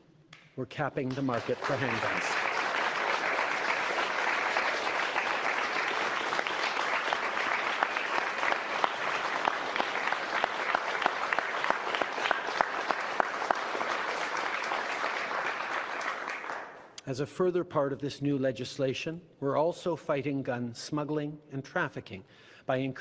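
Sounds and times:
crowd applauding: 0:00.8 - 0:16.9.

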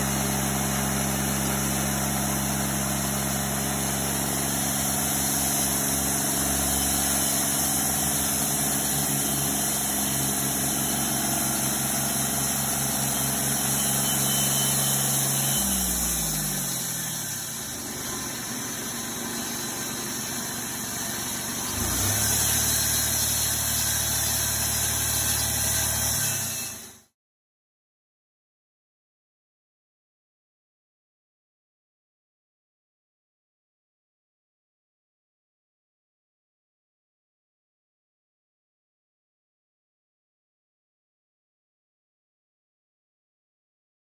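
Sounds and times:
bandsaw mill engine running: 0:00.0 - 0:27.1.

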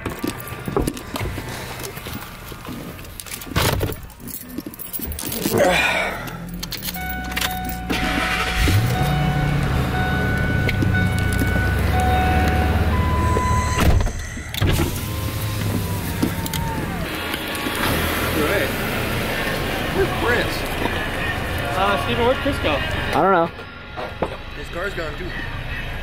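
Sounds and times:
clattering handling noises: 0:00.0 - 0:09.0
car engine revving: 0:06.2 - 0:13.8, 0:14.6 - 0:23.1.

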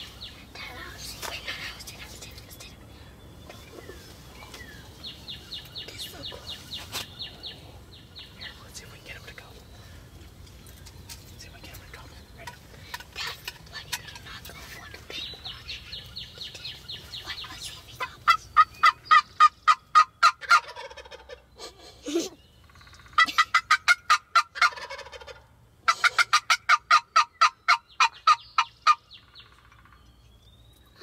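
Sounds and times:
wild turkeys calling: 0:09.3 - 0:31.0.

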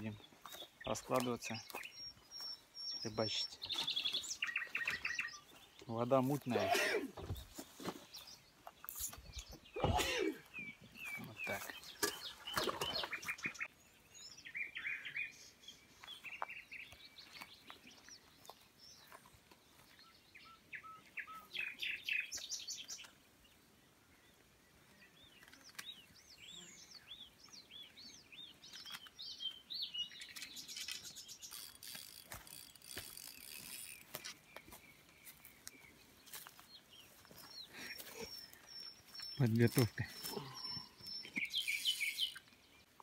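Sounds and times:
birds chirping and calling: 0:00.0 - 0:43.0.

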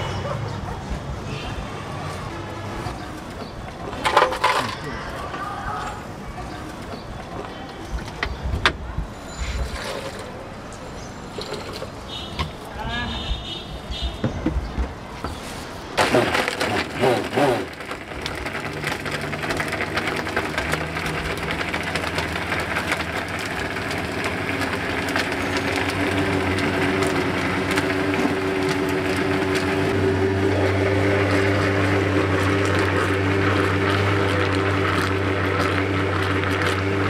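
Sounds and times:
blender motor hum: 0:16.0 - 0:37.0.

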